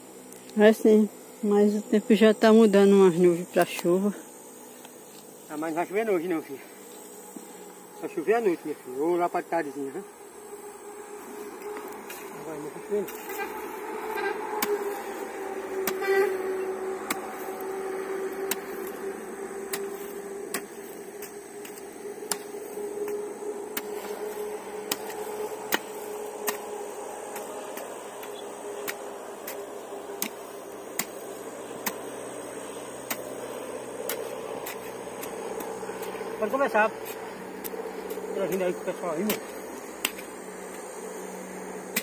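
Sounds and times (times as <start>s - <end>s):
droning hum: 0.0s - 42.0s
hoe chopping stony soil: 12.1s - 16.4s, 17.0s - 17.6s, 18.5s - 19.0s, 19.7s - 40.4s.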